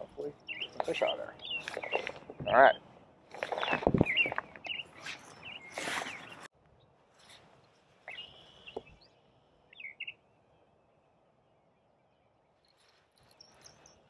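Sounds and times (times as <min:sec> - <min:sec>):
bird chirps: 0:00.0 - 0:02.8, 0:03.4 - 0:06.5, 0:08.1 - 0:14.0
high bird whistle: 0:03.6 - 0:06.5, 0:08.1 - 0:09.1.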